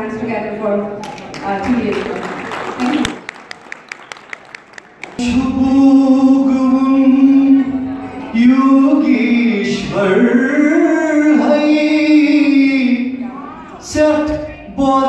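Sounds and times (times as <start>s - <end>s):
scattered claps: 1.0s - 5.2s
man singing into microphone: 5.2s - 15.0s.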